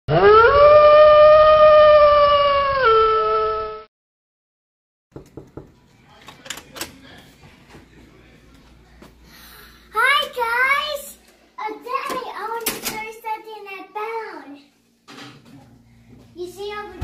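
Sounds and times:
wolf howl: 0.1 - 3.8.

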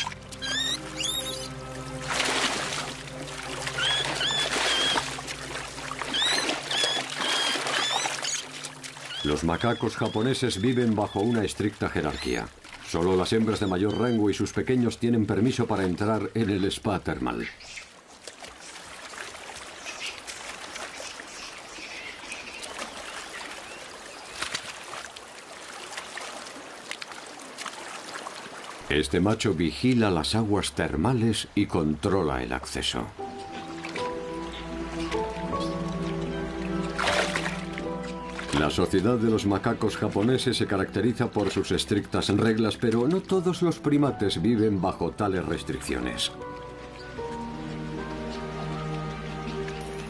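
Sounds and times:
high squeaky monkey calls: 0.0 - 1.5, 3.7 - 5.2, 6.1 - 10.2
monkeys splashing in water: 0.0 - 14.2, 17.6 - 28.9, 33.6 - 39.0.

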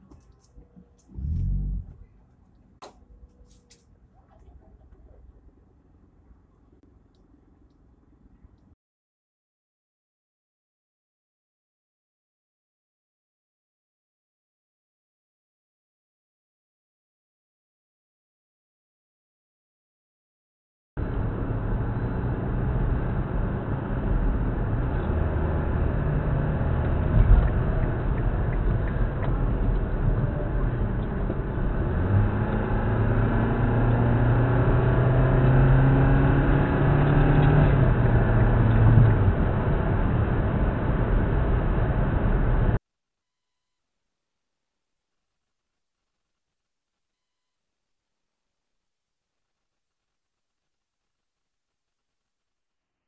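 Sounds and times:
road noise: 0.0 - 8.3, 21.0 - 42.8
car engine from inside cabin: 0.6 - 2.2, 21.0 - 42.8.

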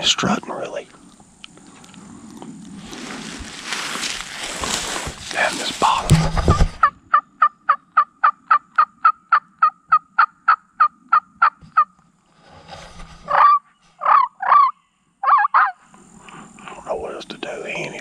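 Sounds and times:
turkey yelps: 13.3 - 15.8.

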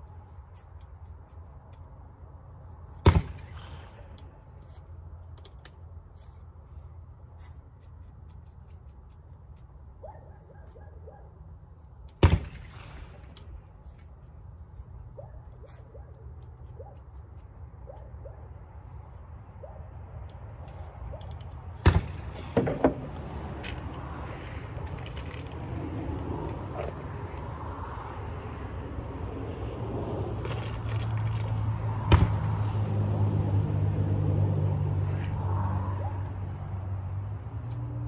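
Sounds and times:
metal handling and scraping: 22.4 - 27.4.

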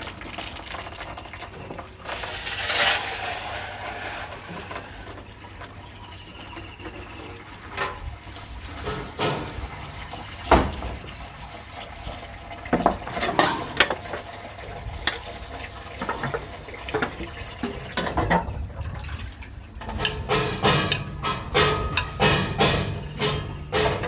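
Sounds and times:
tap water running into tub: 0.0 - 24.0
metal plates clinking: 7.7 - 11.3, 19.8 - 24.0
dishes scrubbed by hand: 7.8 - 12.4, 19.9 - 24.0.

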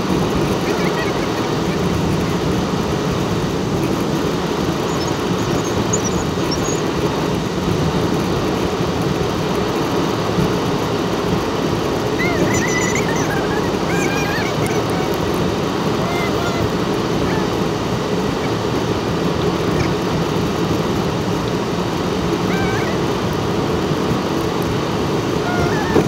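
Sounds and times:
car road and engine noise: 0.0 - 26.0
faint high-pitched squeaks: 12.2 - 15.2, 16.0 - 17.5, 22.5 - 23.0, 25.4 - 26.0.

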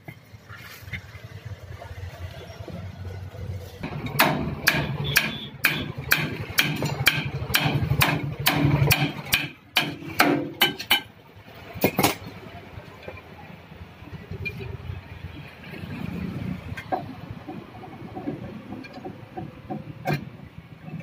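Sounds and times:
hammer ringing on metal hub: 4.1 - 11.1.

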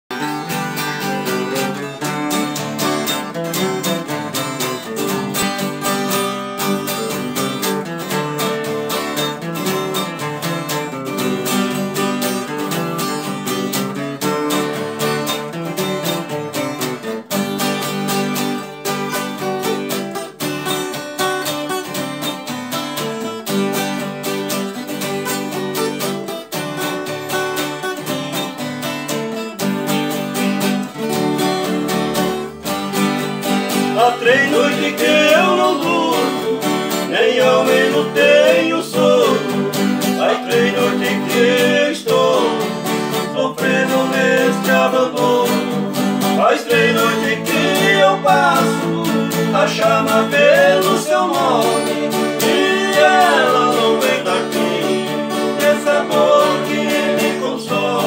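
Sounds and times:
acoustic guitars playing: 0.0 - 58.0.

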